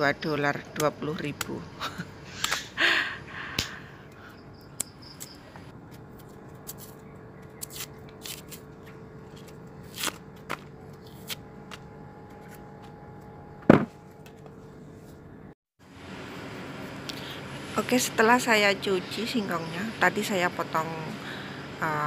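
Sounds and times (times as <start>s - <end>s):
knife scraping roots: 6.1s - 11.5s.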